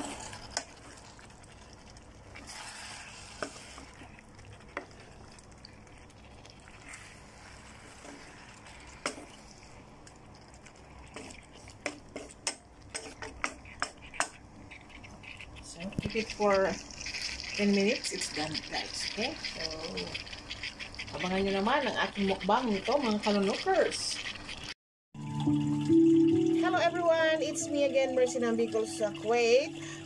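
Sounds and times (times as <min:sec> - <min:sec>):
spatula stirring food in sauce: 0:00.0 - 0:24.8
low sizzle: 0:00.0 - 0:30.0
spatula scraping pan: 0:02.3 - 0:05.2, 0:06.6 - 0:09.8, 0:10.9 - 0:24.7.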